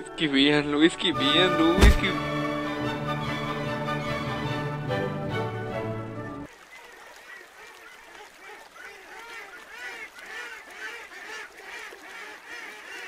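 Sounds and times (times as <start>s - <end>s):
music: 0.0s - 6.5s
waterfowl quacking and honking: 0.8s - 4.6s, 6.6s - 13.0s.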